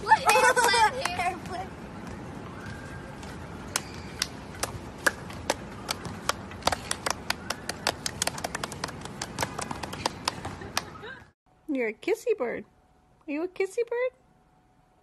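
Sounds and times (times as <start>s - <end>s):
outdoor background noise: 0.0s - 15.0s
hand claps: 3.7s - 11.0s.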